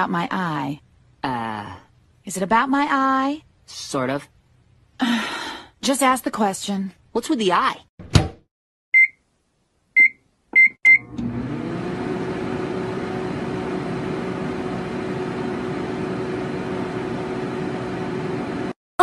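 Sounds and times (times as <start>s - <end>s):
microwave keypad beeps: 8.9s - 9.2s, 10.0s - 11.1s
microwave oven humming: 10.9s - 18.8s.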